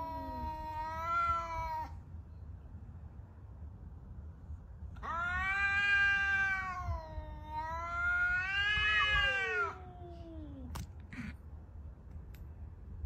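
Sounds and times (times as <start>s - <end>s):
cat yowling: 0.0s - 2.0s, 5.0s - 10.7s.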